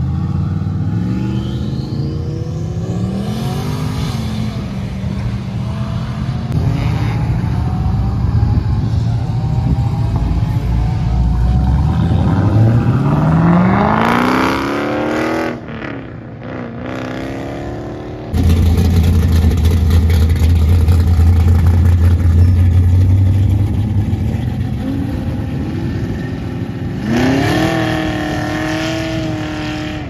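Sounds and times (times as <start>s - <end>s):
car accelerating hard: 0.0s - 30.0s
car engine idling: 18.4s - 24.8s.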